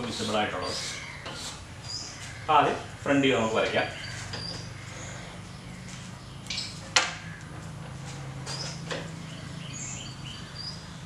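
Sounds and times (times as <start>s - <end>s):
chalk scratching on blackboard: 0.0s - 1.7s
steady low hum: 0.0s - 11.0s
high bird chirps: 0.3s - 7.5s, 8.5s - 10.9s.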